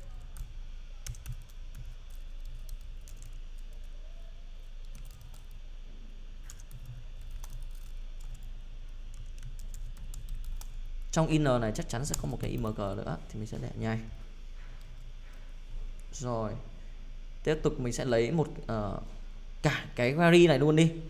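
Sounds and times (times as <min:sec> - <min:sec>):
typing on a computer keyboard: 0:00.0 - 0:04.0, 0:04.8 - 0:05.6, 0:06.4 - 0:08.5, 0:09.1 - 0:10.8.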